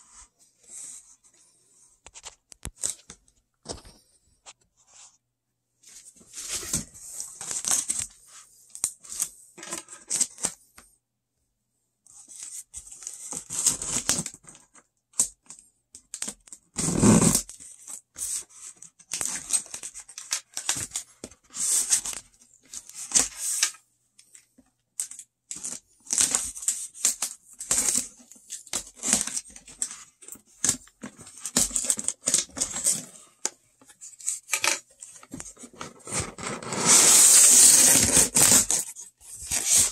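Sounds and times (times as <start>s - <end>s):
packaging tearing and rustling: 34.3s - 39.9s.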